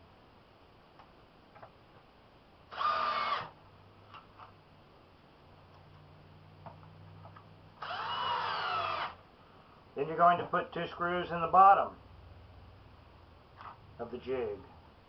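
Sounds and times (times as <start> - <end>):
power drill driving screw into wood: 2.7 - 3.6, 7.8 - 9.2.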